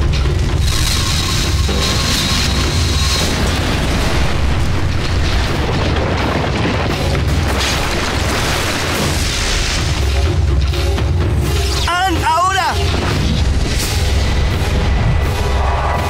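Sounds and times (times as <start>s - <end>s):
crashing rock rumble: 0.0s - 10.7s
fire blasts: 0.0s - 16.0s.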